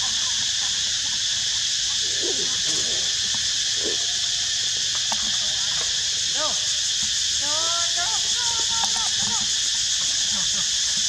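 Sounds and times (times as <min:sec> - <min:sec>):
insects droning: 0:00.0 - 0:11.0
monkey coo calls: 0:02.0 - 0:05.3.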